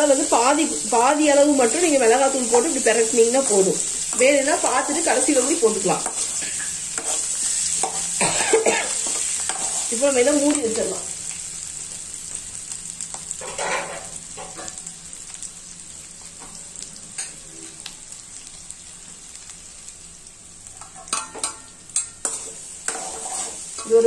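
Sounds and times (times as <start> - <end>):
potatoes sizzling in oil: 0.0 - 24.0
metal spatula scraping pan: 9.0 - 9.9, 13.4 - 14.1, 20.8 - 24.0.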